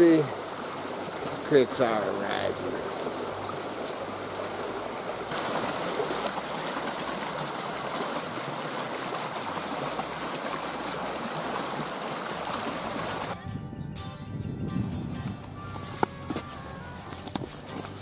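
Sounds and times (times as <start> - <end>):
creek rushing over rocks: 0.0 - 13.4.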